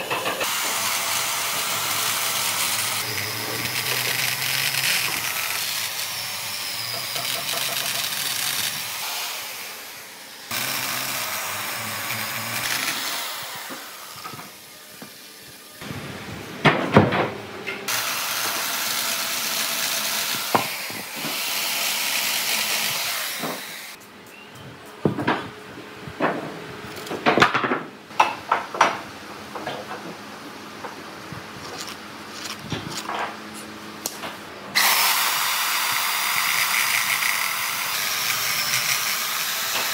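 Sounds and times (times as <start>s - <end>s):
electric chainsaw cutting log: 0.0s - 15.6s, 17.9s - 24.0s, 34.8s - 39.9s.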